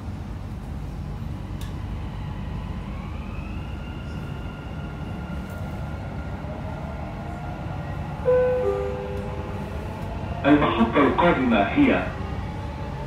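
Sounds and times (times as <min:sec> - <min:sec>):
train rumbling inside carriage: 0:00.0 - 0:13.0.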